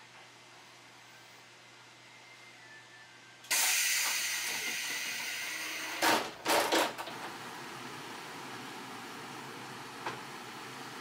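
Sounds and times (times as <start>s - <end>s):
short sharp air bursts: 3.5s - 6.0s
pneumatic door air hiss: 3.5s - 6.2s.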